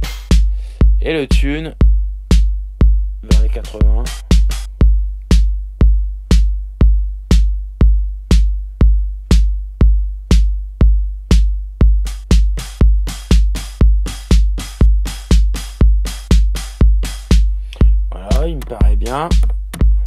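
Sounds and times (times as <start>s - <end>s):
booming kick drum: 0.0s - 20.0s
electronic drum pattern: 0.0s - 20.0s.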